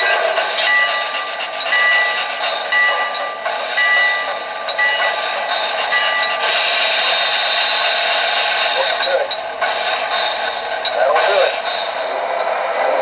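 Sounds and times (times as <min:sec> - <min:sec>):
locomotive bell ringing: 0:00.0 - 0:07.4
steady steam hiss: 0:00.0 - 0:12.4.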